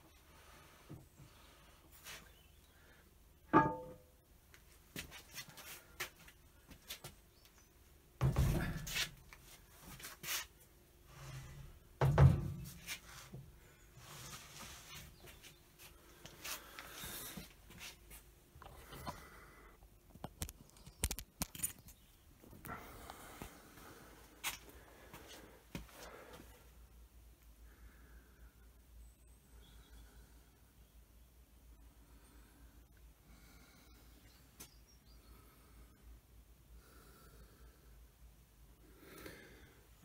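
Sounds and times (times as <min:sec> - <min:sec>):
heavy metal thuds: 0:03.5 - 0:04.0.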